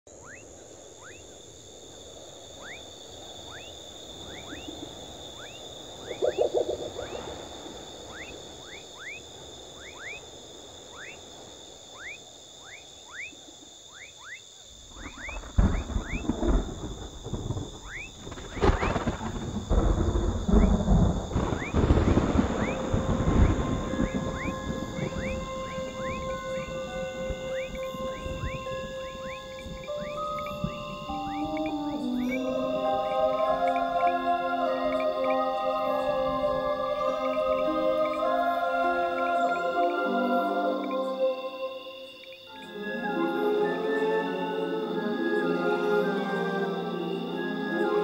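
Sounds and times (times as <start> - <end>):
storm wind and rain: 0.1 - 13.9, 14.6 - 40.3
high-pitched insect drone: 2.0 - 10.3, 11.9 - 48.0
pulsed croak: 2.6 - 10.2, 12.0 - 43.2
short rising chirps: 6.1 - 7.2
rumbling thunder: 14.9 - 32.3.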